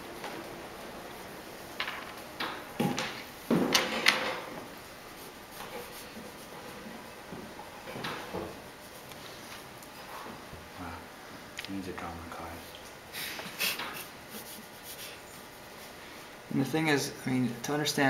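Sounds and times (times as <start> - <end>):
steady room hum: 0.0 - 18.0
short knocks and clatters: 1.8 - 4.7.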